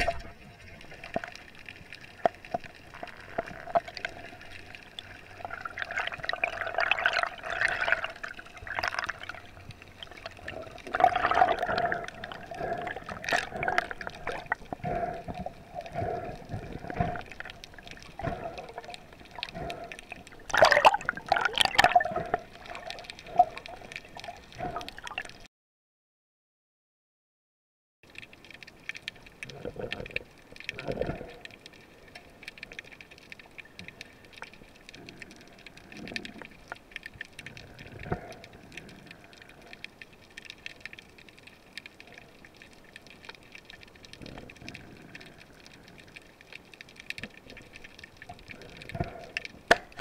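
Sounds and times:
faint steady hum: 0.0 - 25.3
water rushing and bubbling: 0.0 - 25.5, 28.1 - 50.0
clicks and ticks: 28.1 - 50.0.

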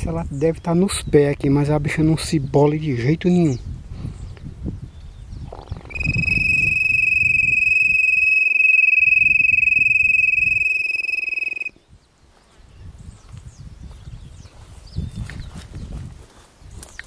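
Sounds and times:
pulsing low insect buzz: 5.4 - 11.7
insect high-pitched whine: 5.5 - 11.7.

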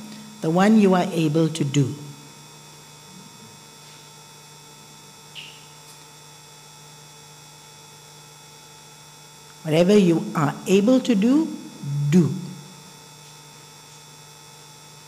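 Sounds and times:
electrical mains hum: 0.0 - 15.0
faint chirp: 5.3 - 5.8.

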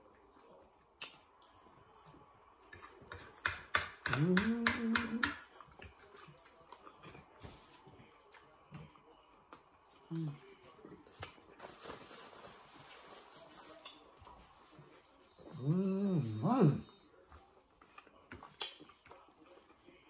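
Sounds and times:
chewing and lip-smacking: 0.0 - 3.4, 5.4 - 11.5, 16.9 - 20.0
forks clicking on plates: 2.7 - 6.2
person humming mmm: 4.1 - 5.3.

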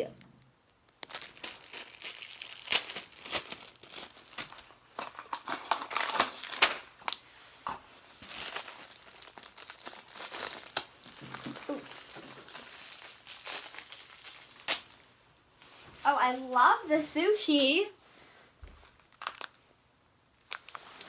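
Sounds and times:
packaging crinkling and tearing: 0.2 - 7.2, 8.2 - 15.1, 18.9 - 19.6, 20.4 - 21.0.

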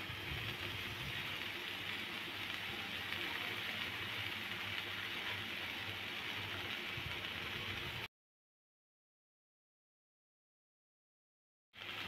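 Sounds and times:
flatbread sizzling on a griddle: 0.0 - 8.1, 11.8 - 12.0.

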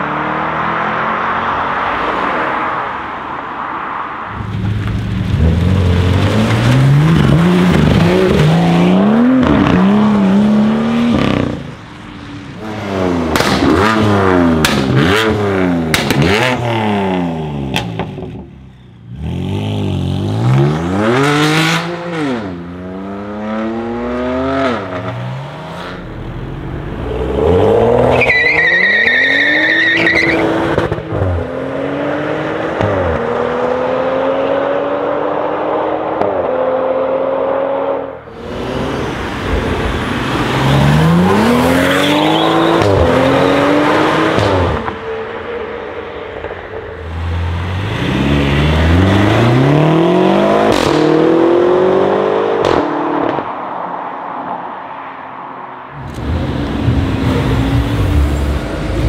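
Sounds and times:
car engines revving: 0.0 - 59.0
exhaust pops and crackles: 13.3 - 13.8
high squeal: 28.0 - 30.4.

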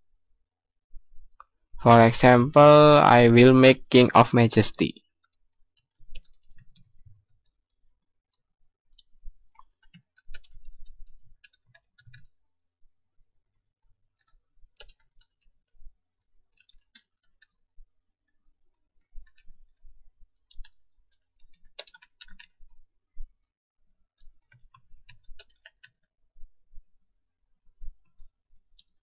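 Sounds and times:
computer keyboard typing: 5.2 - 6.9, 9.6 - 12.3, 14.1 - 15.5, 20.4 - 22.6, 24.2 - 26.1.

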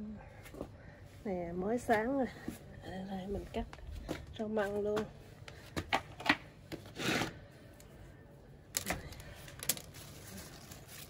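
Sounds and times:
leaves rustling: 9.5 - 11.0.

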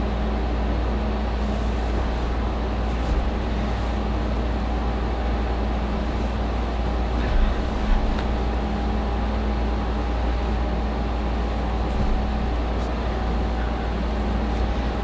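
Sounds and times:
low hum with hiss: 0.0 - 15.0
soft bumps of sofa cushions: 11.8 - 13.0.

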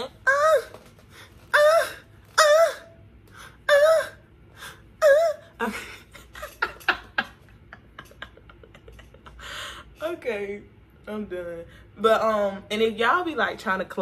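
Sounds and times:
woman laughing: 5.0 - 9.8.

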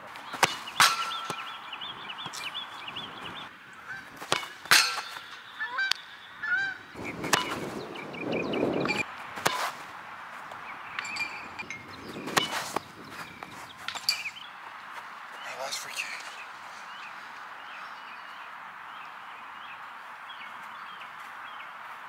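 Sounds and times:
birds calling: 0.0 - 22.0.

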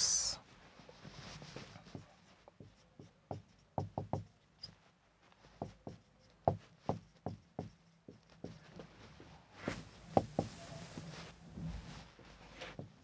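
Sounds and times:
marker pen tapping on whiteboard: 1.8 - 4.7, 5.6 - 8.9.

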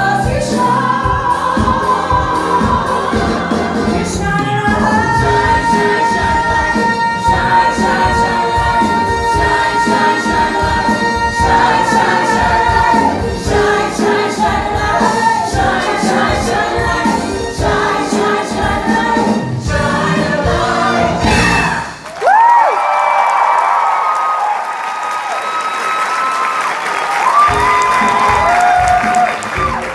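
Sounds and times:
ensemble chorus singing: 0.0 - 21.8
pit band playing: 0.0 - 22.2, 27.2 - 29.9.

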